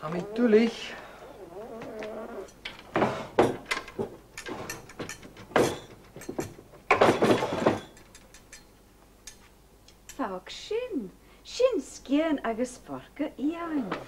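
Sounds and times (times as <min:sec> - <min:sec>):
cutlery clinking on a table: 0:04.4 - 0:08.7
drawer rattling open: 0:06.9 - 0:08.0.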